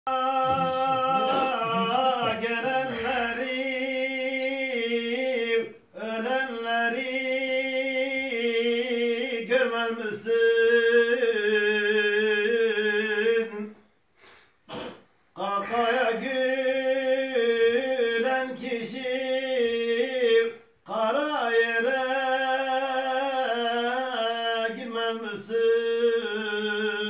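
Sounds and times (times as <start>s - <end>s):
man singing a hymn: 0.1s - 13.8s, 15.3s - 27.0s.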